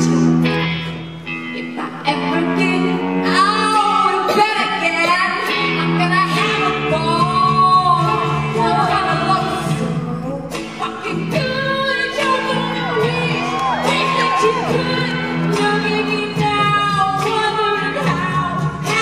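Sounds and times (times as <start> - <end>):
electric guitar playing: 0.0 - 19.0
woman singing: 1.3 - 19.0.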